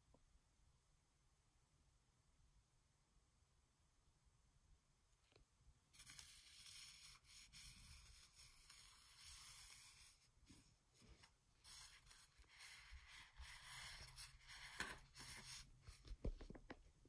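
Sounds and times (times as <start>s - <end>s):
soft handling rubs: 5.9s - 16.3s.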